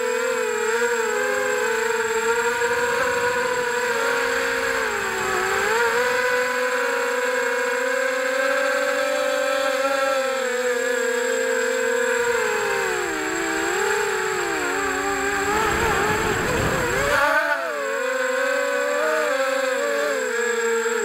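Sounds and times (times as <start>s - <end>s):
drone motors and propellers whining: 0.0s - 21.0s.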